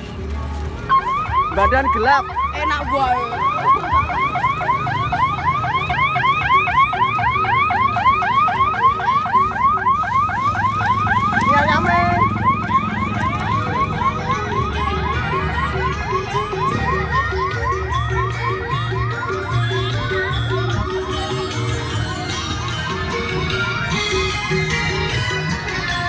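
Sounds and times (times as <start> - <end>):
electronic siren yelping: 0.9 - 25.5.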